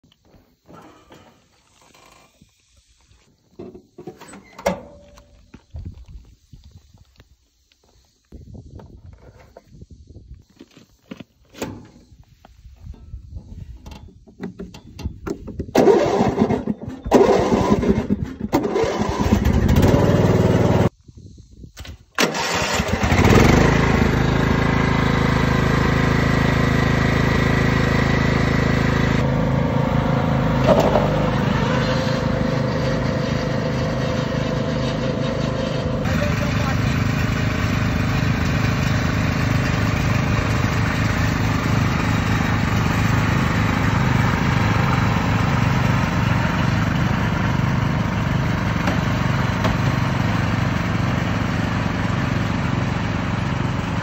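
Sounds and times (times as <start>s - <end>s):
lawn mower engines starting: 0.6s - 5.6s, 10.6s - 20.9s, 21.8s - 54.0s
lawn mower engines running: 10.6s - 20.9s, 22.2s - 54.0s.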